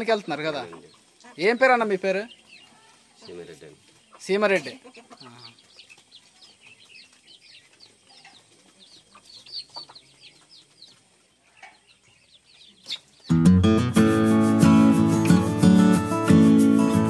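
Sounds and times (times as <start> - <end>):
chickens clucking: 0.0 - 13.5
chicks peeping: 0.0 - 13.6
guitar music: 13.3 - 17.0.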